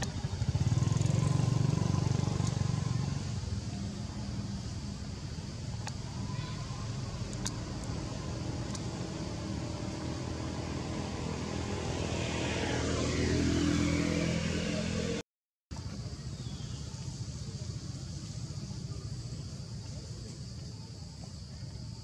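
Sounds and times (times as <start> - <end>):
vehicle engine passing by: 0.0 - 15.2.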